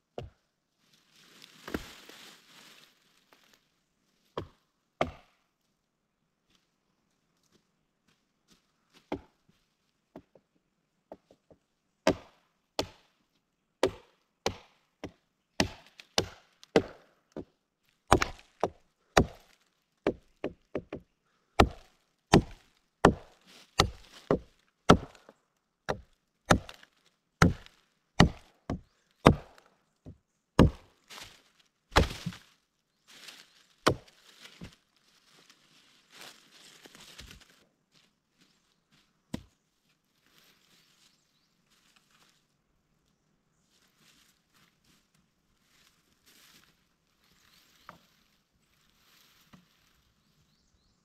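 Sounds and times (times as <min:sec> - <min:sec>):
wood chopping strikes: 0:04.4 - 0:05.4, 0:12.1 - 0:13.0, 0:13.8 - 0:17.5, 0:18.1 - 0:21.0, 0:21.6 - 0:25.3, 0:25.9 - 0:26.8, 0:27.4 - 0:29.7, 0:30.6 - 0:32.5, 0:33.8 - 0:34.8.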